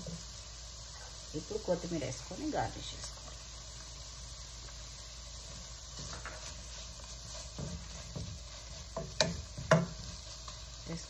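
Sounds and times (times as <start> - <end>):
wooden spatula scraping a pan: 5.5 - 11.0
spatula knocking against pan: 7.6 - 10.0.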